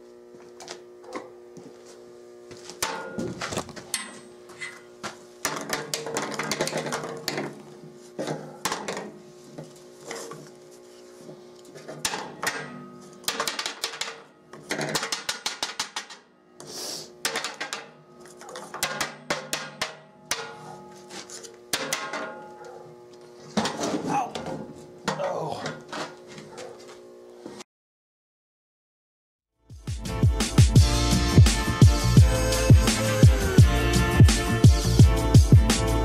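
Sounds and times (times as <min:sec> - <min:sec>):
background music: 0:29.7 - 0:36.0.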